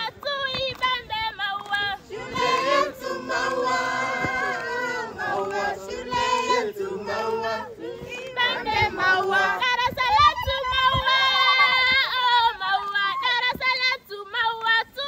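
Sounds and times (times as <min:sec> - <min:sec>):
students singing together: 0:01.7 - 0:13.7.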